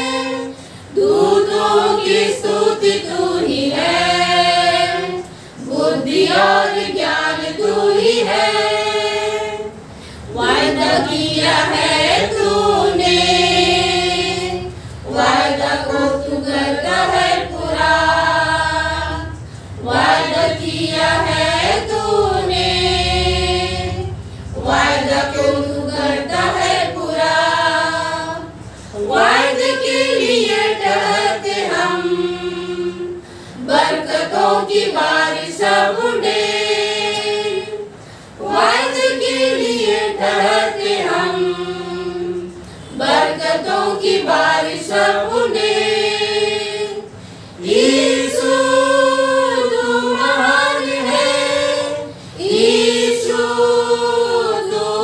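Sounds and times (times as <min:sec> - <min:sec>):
women singing a hymn: 0:00.0 - 0:55.0.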